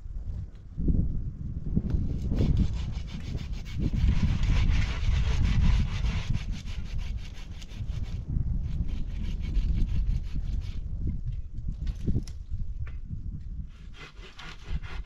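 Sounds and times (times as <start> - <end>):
hand saw cutting branch: 2.1 - 10.8, 13.7 - 15.0.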